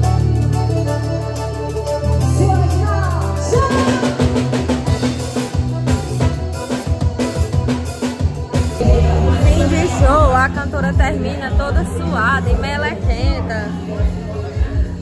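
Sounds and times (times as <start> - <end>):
accordion chords: 0.0 - 13.4
drums playing quick beat: 3.4 - 12.0.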